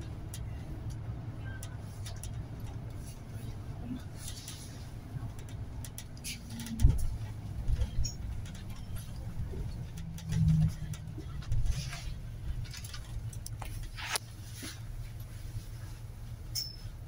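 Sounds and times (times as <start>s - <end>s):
bus engine rumble: 0.0s - 17.0s
knocks and rattles: 5.2s - 14.0s.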